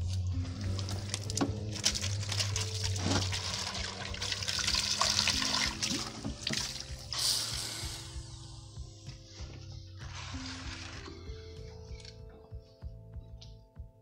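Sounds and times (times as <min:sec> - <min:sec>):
water splashing on tiled floor: 0:00.6 - 0:07.0.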